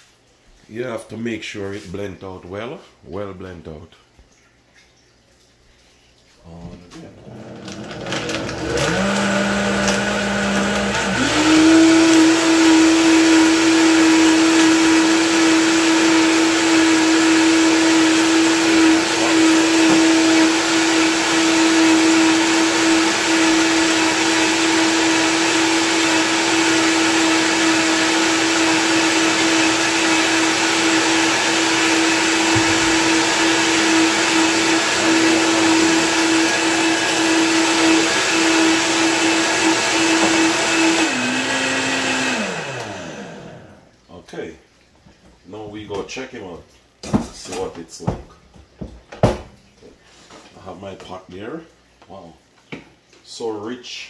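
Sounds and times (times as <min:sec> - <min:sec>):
blender motor running: 0:07.2 - 0:43.9.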